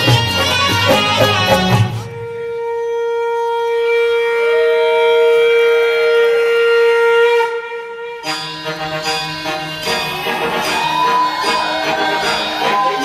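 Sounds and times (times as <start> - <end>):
folk dance music: 0.0 - 2.8, 8.3 - 13.0
long held wind instrument note: 0.0 - 13.0.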